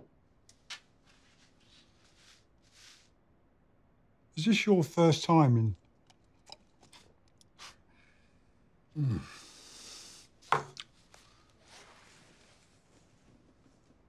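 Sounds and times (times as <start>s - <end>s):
man sighing: 9.0s - 9.8s.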